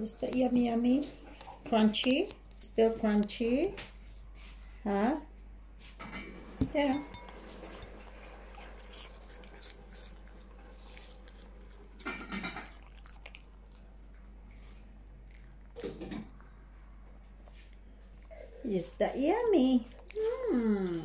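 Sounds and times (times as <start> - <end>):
dog crunching apple: 0.0 - 3.6, 7.3 - 18.5, 19.6 - 20.4.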